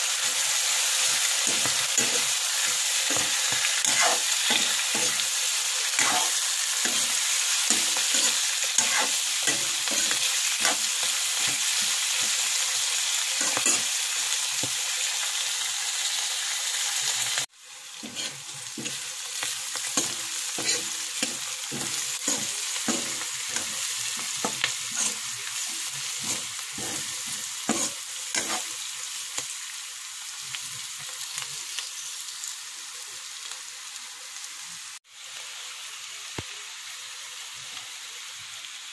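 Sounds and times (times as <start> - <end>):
vegetables sizzling in oil: 0.0 - 38.9
spatula clacking and scraping wok: 0.2 - 14.8, 18.0 - 29.5.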